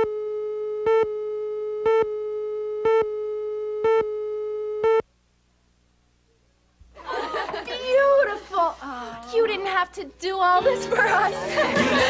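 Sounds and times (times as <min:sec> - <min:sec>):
electronic beeps: 0:00.0 - 0:05.0
electronic test tone: 0:00.0 - 0:05.0.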